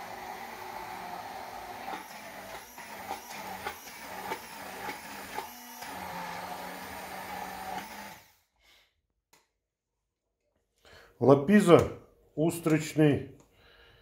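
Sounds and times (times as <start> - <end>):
immersion blender motor whining: 0.0 - 8.5.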